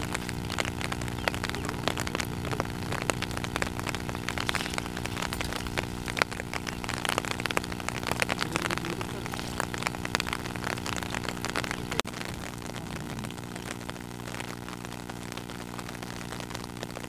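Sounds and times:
rain pattering on water: 0.0 - 17.0
steady low hum: 0.0 - 17.0.

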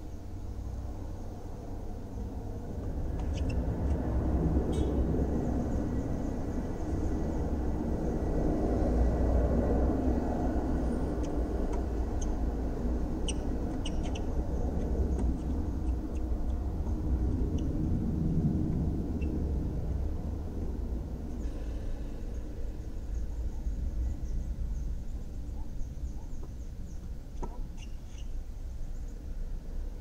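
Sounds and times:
steady low rumble: 0.0 - 30.0.

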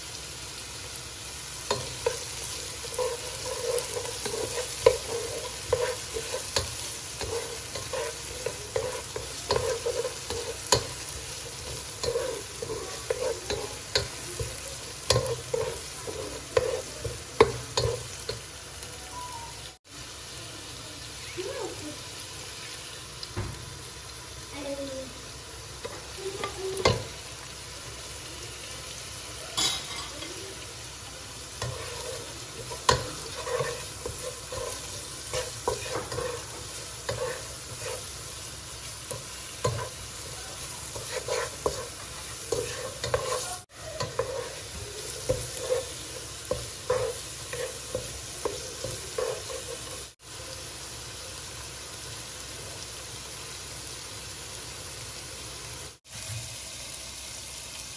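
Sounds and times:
sizzle of frying: 0.0 - 57.9
wooden spatula scraping frying pan: 1.7 - 18.4, 31.5 - 38.3, 38.9 - 50.2.

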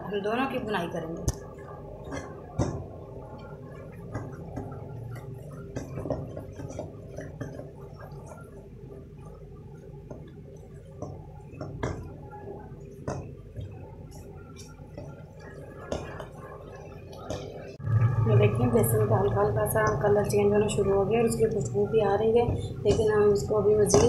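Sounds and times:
thick paste bubbling and popping: 1.2 - 18.2, 19.1 - 24.0.

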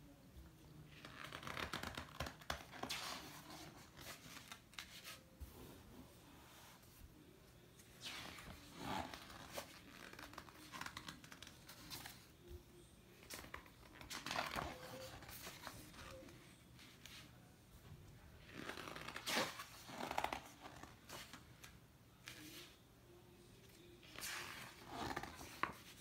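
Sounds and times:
book pages turning: 0.9 - 6.0, 7.8 - 12.4, 13.1 - 17.4, 18.4 - 22.8, 23.7 - 26.0.

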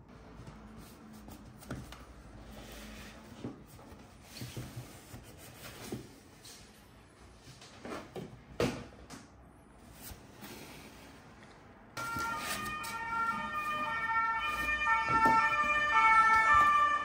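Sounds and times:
cardboard boxes tapping and scraping: 12.0 - 17.0.

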